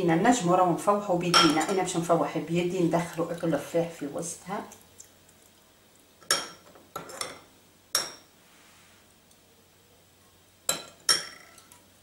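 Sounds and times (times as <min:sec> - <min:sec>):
metal spoon clinking ceramic bowl: 0:10.7 - 0:11.8.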